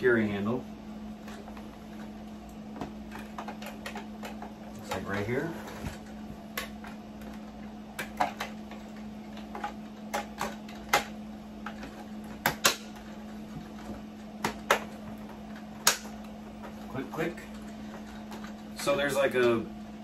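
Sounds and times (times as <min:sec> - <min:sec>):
steady low hum: 0:00.0 - 0:20.0
plastic snaps: 0:15.8 - 0:16.8.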